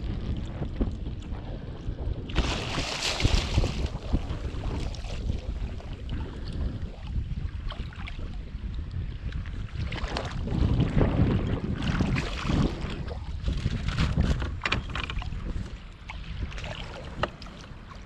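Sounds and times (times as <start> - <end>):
wind rumble on microphone: 0.0 - 18.0
shark splashing water: 2.3 - 6.7.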